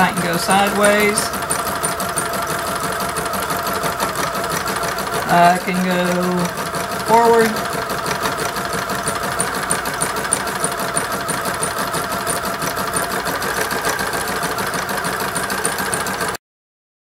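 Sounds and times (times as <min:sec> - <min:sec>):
sewing machine motor hum: 0:00.0 - 0:16.4
sewing needle ticking: 0:00.0 - 0:16.4.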